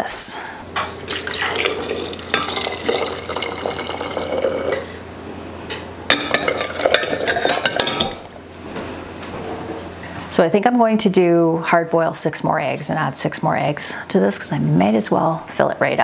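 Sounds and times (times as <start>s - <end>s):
liquid poured into glass jar: 1.0s - 5.0s
utensil clinking on pot and jar: 6.1s - 8.2s.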